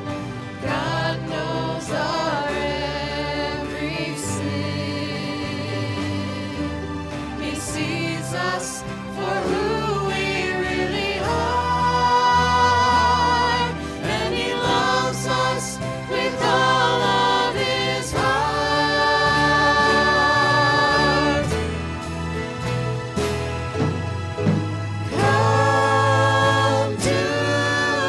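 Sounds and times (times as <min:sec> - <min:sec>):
guitars: 0:00.0 - 0:28.0
keyboard: 0:00.0 - 0:28.0
voices singing: 0:00.6 - 0:22.0, 0:25.1 - 0:28.0.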